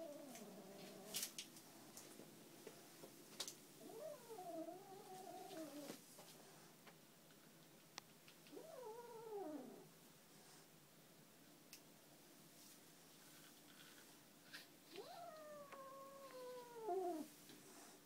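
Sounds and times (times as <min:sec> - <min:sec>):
cat yowling: 0:15.0 - 0:17.3.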